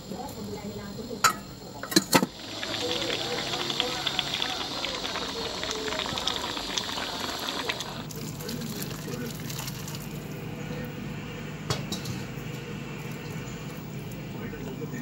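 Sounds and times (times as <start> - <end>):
broth boiling in a pot: 0.0 - 15.0
broth being poured into pot: 2.2 - 10.4.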